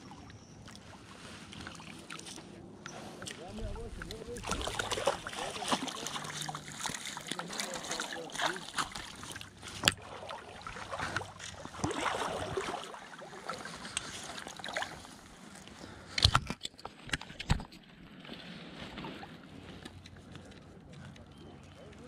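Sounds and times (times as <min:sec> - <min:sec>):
landing net handled in water: 0:00.0 - 0:22.0
water sloshing around wading legs: 0:00.0 - 0:22.0.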